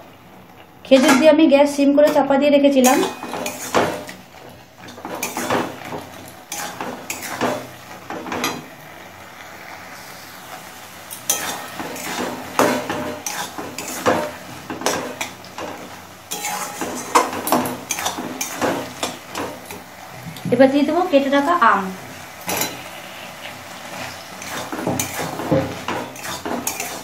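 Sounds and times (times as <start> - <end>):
metal spatula scraping a pan: 2.8 - 4.2, 4.8 - 8.6, 10.0 - 19.9, 22.4 - 27.0.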